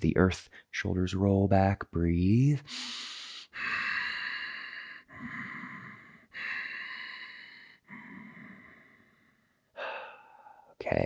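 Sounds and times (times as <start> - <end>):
man breathing slowly: 2.7 - 10.8.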